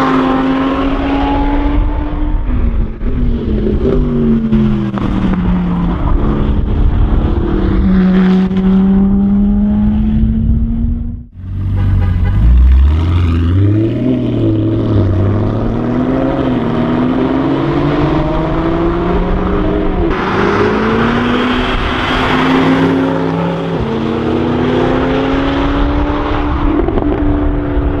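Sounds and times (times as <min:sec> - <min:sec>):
loud rushing noise: 0:20.1 - 0:26.6.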